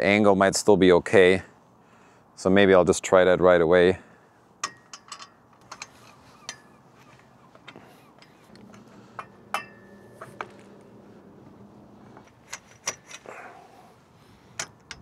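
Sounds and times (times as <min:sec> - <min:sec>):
metal tubes clicking in clamps: 0:04.6 - 0:06.7, 0:12.2 - 0:13.3, 0:14.5 - 0:15.0.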